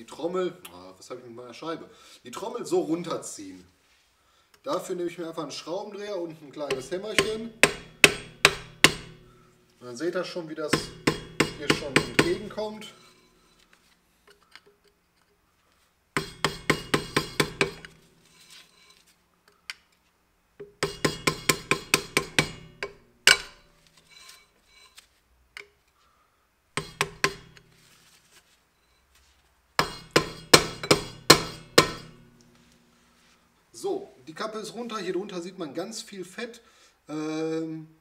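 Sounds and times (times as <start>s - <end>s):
hammer tapping metal: 6.7s - 9.3s, 10.7s - 13.3s, 16.2s - 18.1s, 20.6s - 24.3s, 26.8s - 27.7s, 29.8s - 32.5s.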